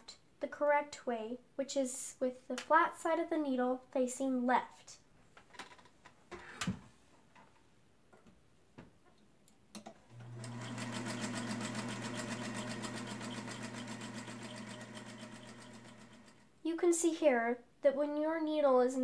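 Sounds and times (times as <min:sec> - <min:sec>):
sewing machine stitching: 0:10.1 - 0:16.5.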